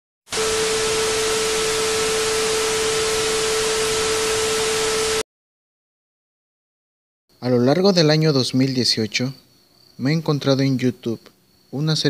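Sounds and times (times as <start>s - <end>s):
static hiss: 0.3s - 5.2s
steady tone: 0.3s - 5.2s.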